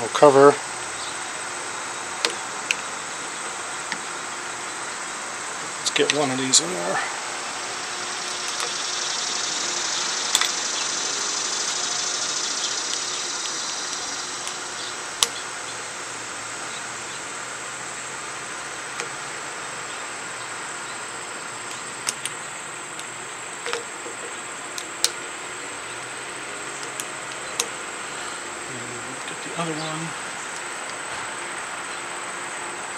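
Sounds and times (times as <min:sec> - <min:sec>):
high drone: 0:00.0 - 0:17.3, 0:18.1 - 0:32.9
steady background hiss: 0:00.0 - 0:32.9
screwdriver clicks: 0:08.2 - 0:08.8, 0:15.2 - 0:15.4, 0:21.6 - 0:22.4, 0:23.0 - 0:25.3, 0:26.7 - 0:27.8.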